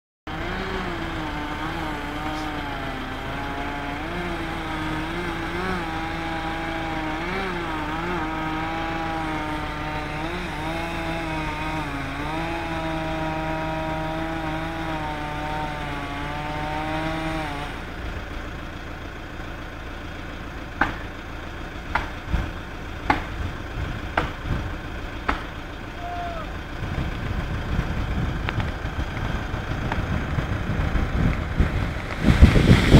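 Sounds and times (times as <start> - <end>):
chainsaw running under load: 0.3 - 32.9
sharp knocks: 20.8 - 21.0, 21.9 - 22.5, 23.1 - 23.4.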